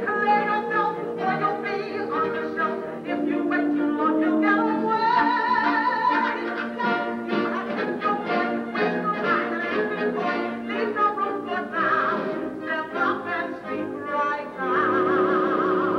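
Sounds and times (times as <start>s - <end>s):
pit orchestra music: 0.0s - 15.9s.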